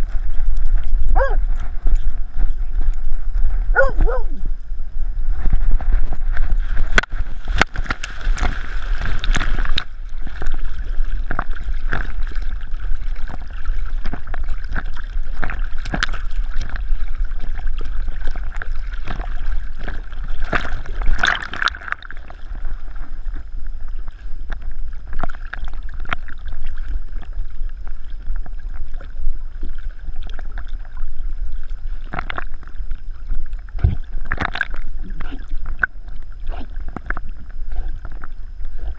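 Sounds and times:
dog paddling splashing water: 5.4s - 23.0s.

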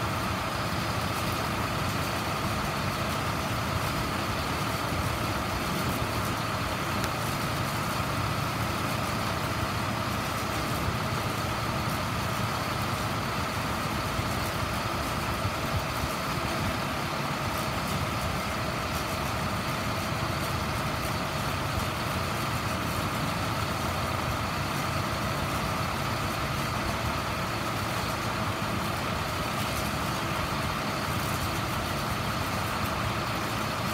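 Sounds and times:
diesel truck engine rumble: 0.0s - 33.9s.

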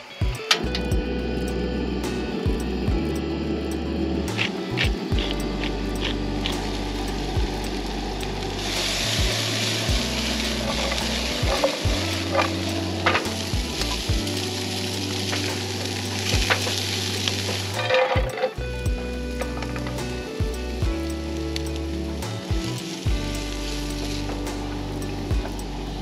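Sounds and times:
vegetables sizzling in a skillet: 5.2s - 18.0s, 19.0s - 26.0s.

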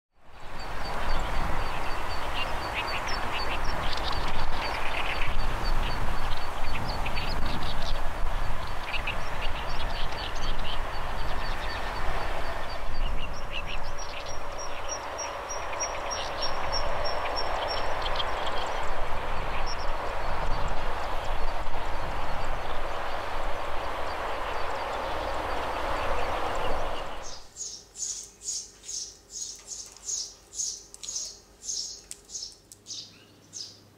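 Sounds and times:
bird chirps: 24.5s - 33.9s.

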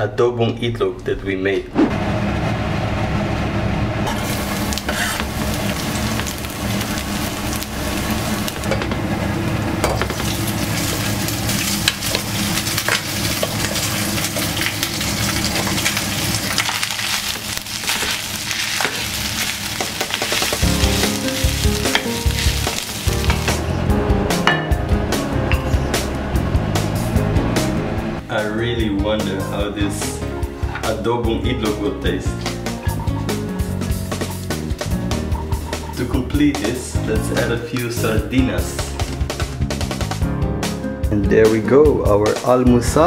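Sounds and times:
spatula scraping pan: 4.1s - 5.4s
rice sizzling in oil: 4.1s - 8.7s, 10.0s - 23.6s.

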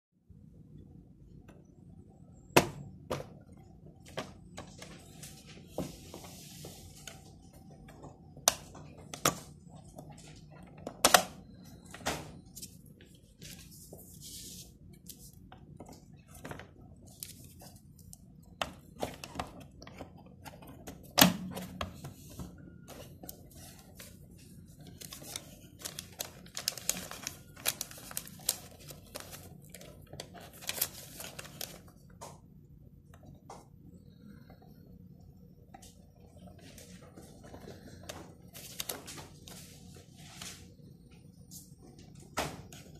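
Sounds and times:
paper rustling and crinkling: 12.2s - 32.0s, 36.6s - 40.8s.

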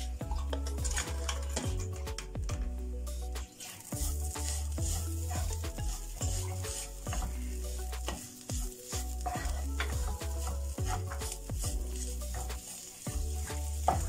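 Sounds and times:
spatula scraping a pan: 0.0s - 1.8s, 3.4s - 14.0s
chicken sizzling in butter: 3.2s - 14.0s.

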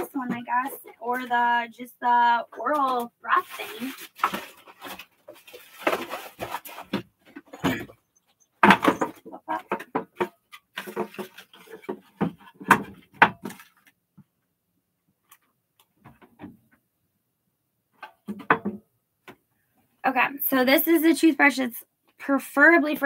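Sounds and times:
items clattering on a shelf: 2.5s - 14.0s, 17.9s - 19.4s.

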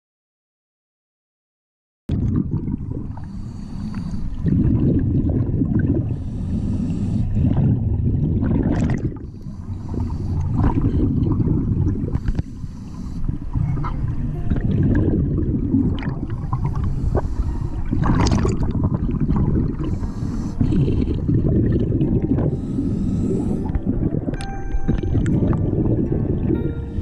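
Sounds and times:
gurgling exhaled bubbles: 2.1s - 3.5s, 4.3s - 6.3s, 7.2s - 12.5s, 13.3s - 27.0s
regulator inhalation hiss: 22.5s - 23.7s.

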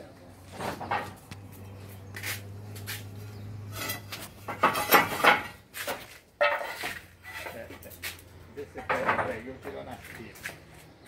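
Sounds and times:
clay roof tiles clattering: 0.4s - 1.6s, 3.6s - 11.0s.

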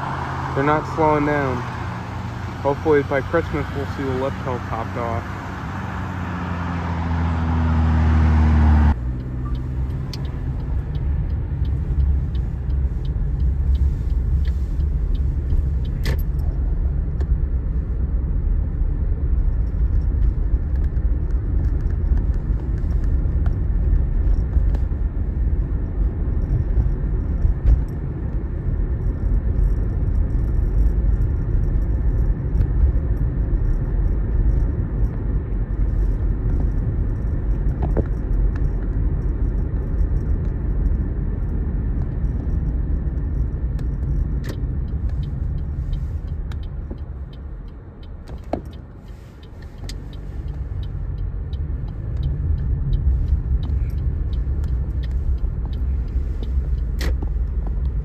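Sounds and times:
car passing by: 0.0s - 10.1s
engine and tyre rumble: 0.0s - 58.0s.

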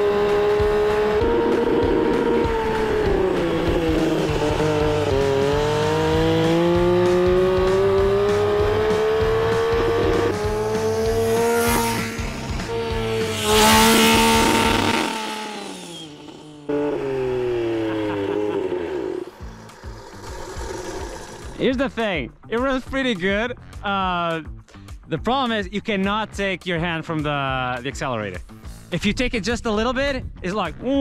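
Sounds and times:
rotary engine running: 0.0s - 21.6s.

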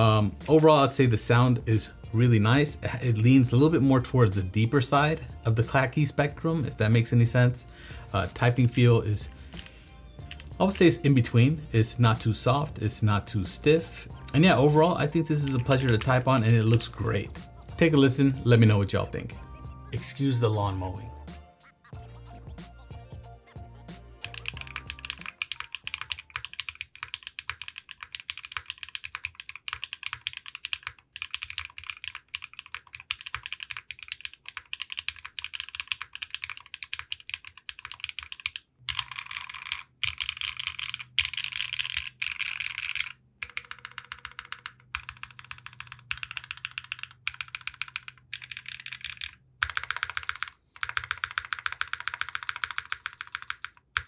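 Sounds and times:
mechanical keyboard typing: 24.2s - 54.0s.

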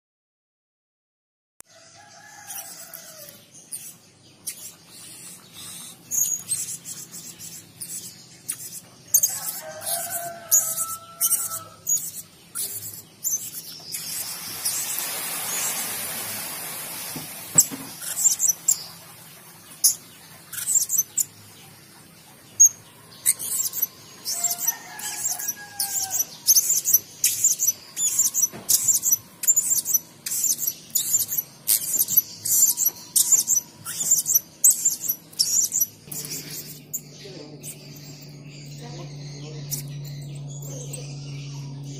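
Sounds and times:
parrot chirping: 2.4s - 15.9s, 17.6s - 19.0s, 19.8s - 21.4s, 22.6s - 41.9s.

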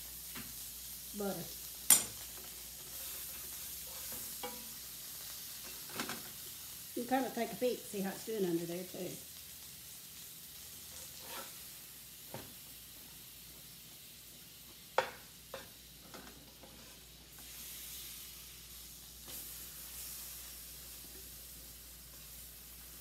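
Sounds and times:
pies sizzling in butter: 0.0s - 23.0s
metal spatula scraping a pan: 2.8s - 4.9s, 10.8s - 11.7s, 15.0s - 17.8s.

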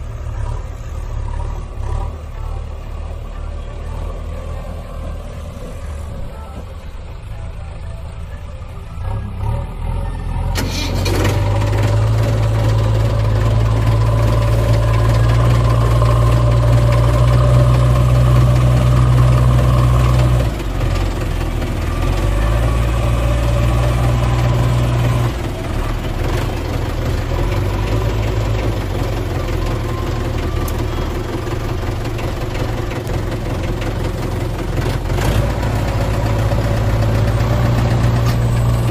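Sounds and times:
engine idling: 0.0s - 38.9s.

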